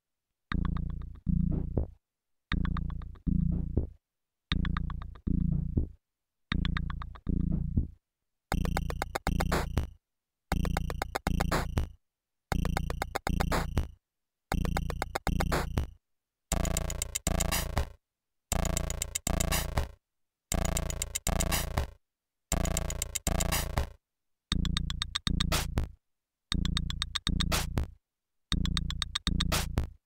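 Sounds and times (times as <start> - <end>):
crisp high percussion: 16.5 - 17.9.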